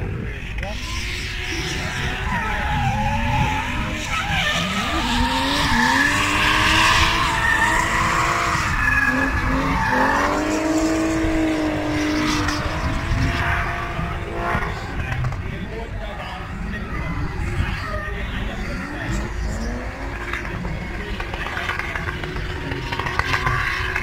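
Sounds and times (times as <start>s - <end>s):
car engines revving hard: 0.0s - 24.0s
tyres screeching: 1.0s - 14.0s.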